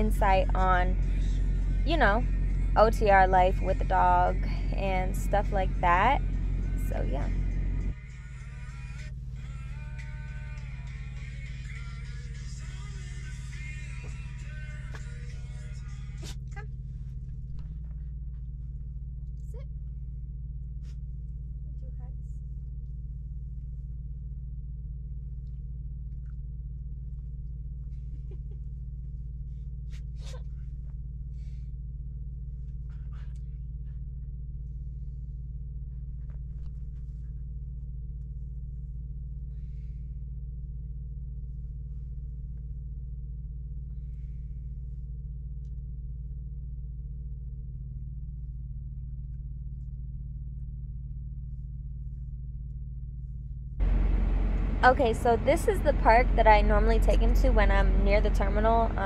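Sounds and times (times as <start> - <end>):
low mechanical hum: 0.0 - 59.0
high steady tone: 53.8 - 59.0.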